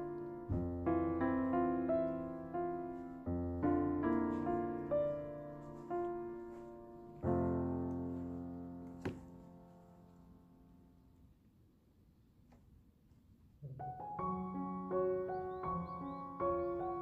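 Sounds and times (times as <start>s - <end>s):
low piano chords: 0.0s - 11.3s, 13.6s - 17.0s
slow piano melody: 0.0s - 11.3s, 13.6s - 17.0s.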